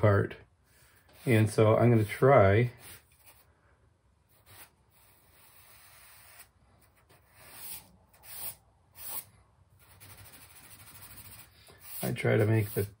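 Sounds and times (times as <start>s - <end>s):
charcoal scraping on paper: 4.3s - 13.0s.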